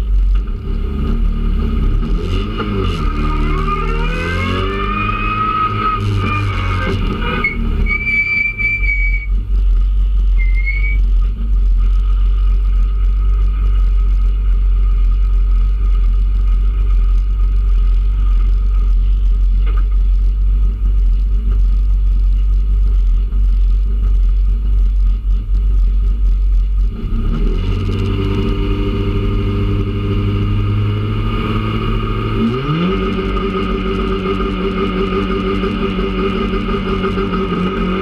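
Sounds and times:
car engine idling and revving: 0.0 - 38.0.

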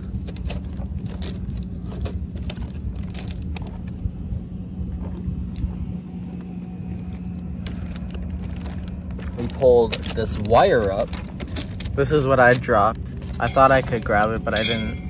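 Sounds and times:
low mechanical hum and rumble: 0.0 - 15.0.

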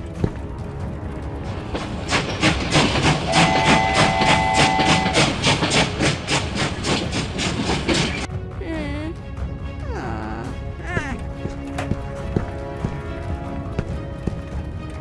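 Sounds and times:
train running: 0.0 - 8.3, 10.9 - 15.0
train horn chord: 3.0 - 5.5.

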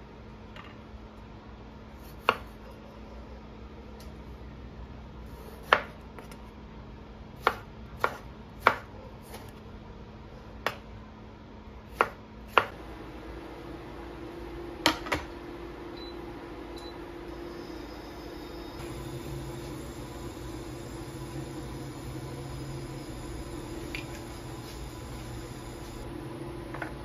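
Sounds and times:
low steady hum: 0.0 - 27.0
knife chopping on cutting board: 2.1 - 2.6, 5.5 - 6.4, 7.4 - 9.5, 11.9 - 12.8.

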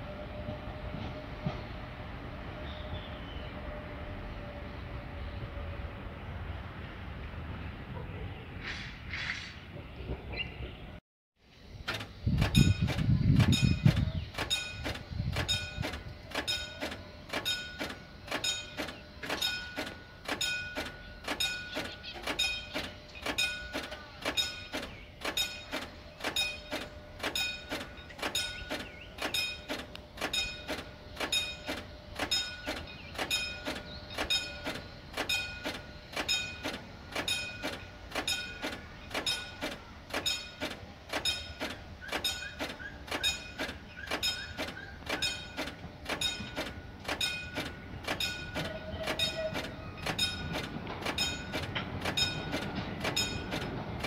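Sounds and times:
level crossing warning bell: 12.0 - 54.0.

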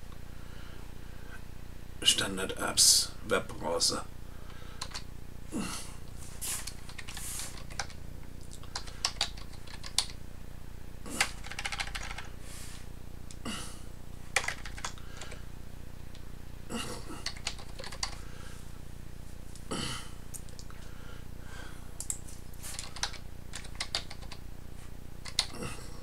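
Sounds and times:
computer keyboard typing: 4.8 - 5.0, 6.6 - 10.2, 11.2 - 12.3, 14.4 - 15.4, 17.2 - 18.2, 22.0 - 24.4, 25.2 - 25.6.

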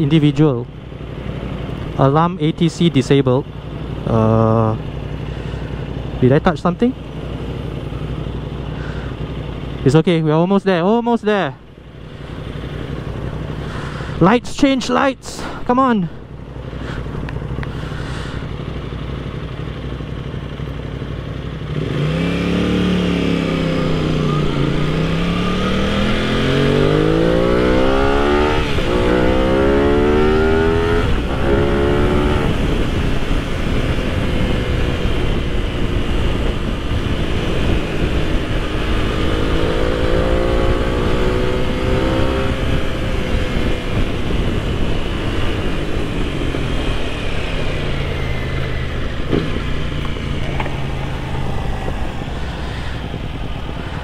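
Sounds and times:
motorcycle engine accelerating: 0.0 - 54.0
wind rush: 30.7 - 54.0.

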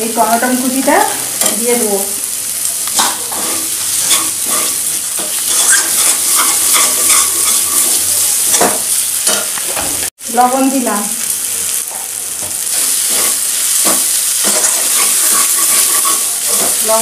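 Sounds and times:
paste and tomatoes sizzling: 0.0 - 17.0
metal spatula scraping pan: 3.0 - 10.0, 12.9 - 17.0.

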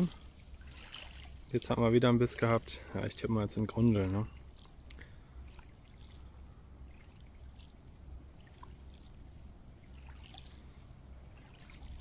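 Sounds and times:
light water sounds: 0.0 - 12.0.

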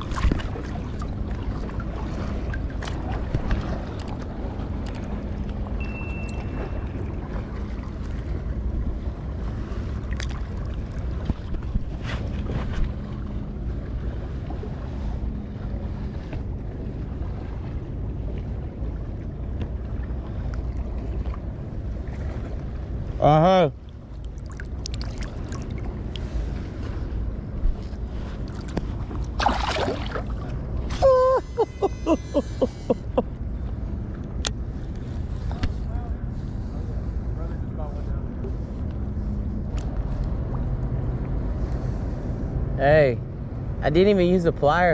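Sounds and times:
wind buffeting microphone: 0.0 - 23.2
fish splashing in water: 28.6 - 30.5
short laugh-like pitched notes: 30.9 - 33.4
long high bird cry: 31.1 - 33.0.

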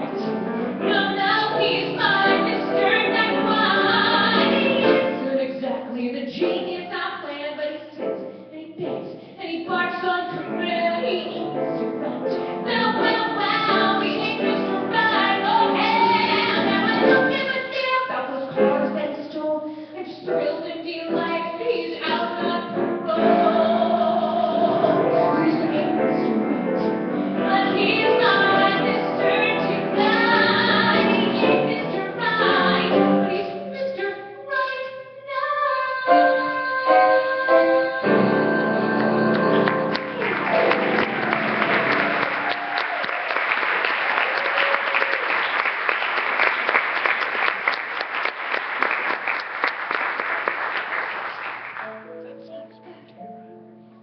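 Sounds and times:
live singing with accompaniment: 10.3 - 19.1, 19.7 - 35.0, 36.0 - 43.0
audience applause: 39.4 - 51.8.

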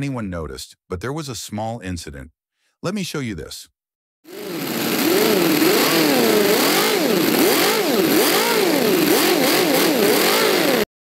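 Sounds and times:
model engine revving: 4.3 - 10.9.

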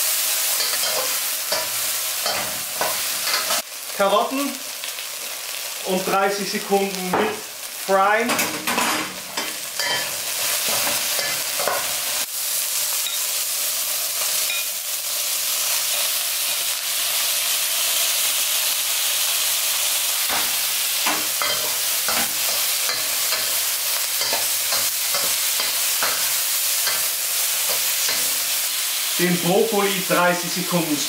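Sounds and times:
food sizzling in a wok: 0.0 - 31.0
metal spatula scraping a wok: 0.5 - 3.6.

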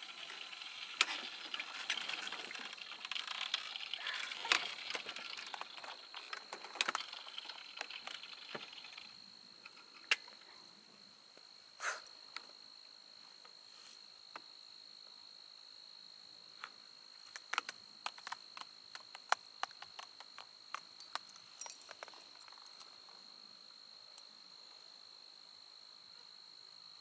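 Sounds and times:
sharp clicks and ticks: 0.0 - 10.3, 17.3 - 22.9
insect trilling: 0.0 - 10.7.

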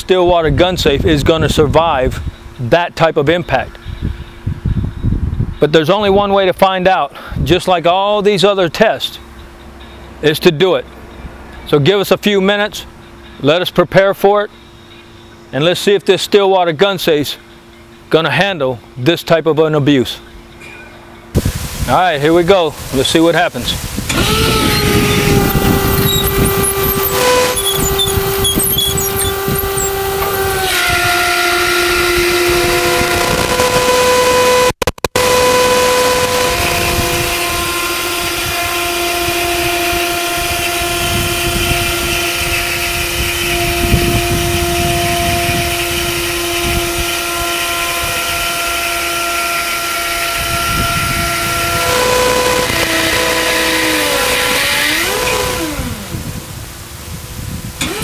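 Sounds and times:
hydraulic mast whine: 1.0 - 6.2, 9.0 - 16.4, 19.8 - 58.0
forklift engine running under load: 23.8 - 34.5, 35.2 - 56.7, 57.8 - 58.0.

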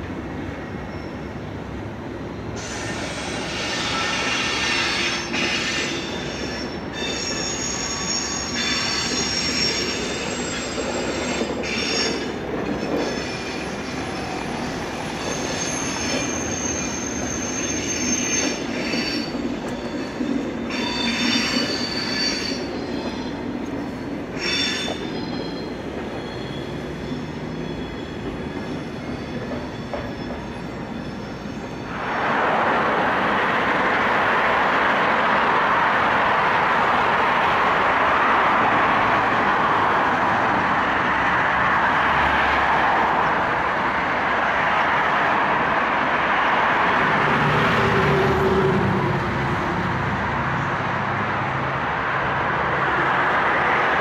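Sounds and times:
train wheels squealing: 0.4 - 32.2
loud rushing noise: 31.9 - 43.6.

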